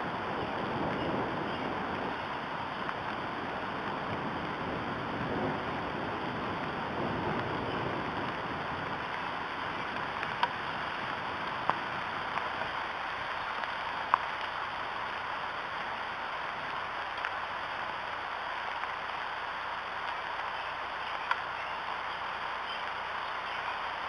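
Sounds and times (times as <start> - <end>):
rain falling on foliage: 0.0 - 24.0
sharp drip ticks: 9.9 - 10.6, 21.2 - 21.5.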